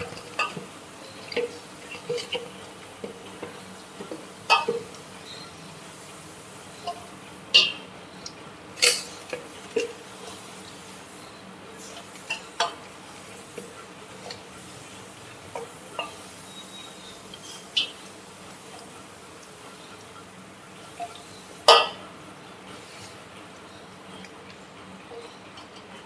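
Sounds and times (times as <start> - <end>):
clinks and knocks of dish handling: 0.0 - 5.0.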